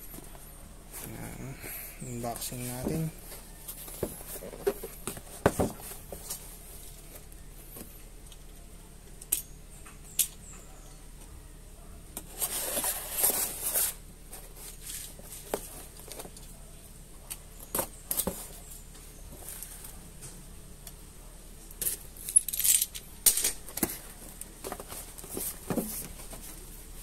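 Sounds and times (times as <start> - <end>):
cardboard box knocks and scrapes: 3.8 - 6.4, 24.6 - 26.6.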